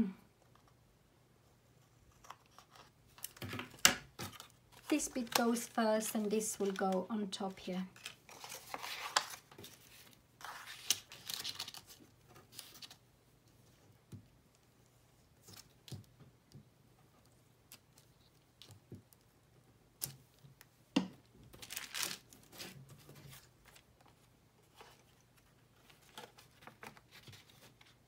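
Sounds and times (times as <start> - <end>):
paper rustling: 2.1 - 13.0, 21.6 - 28.0.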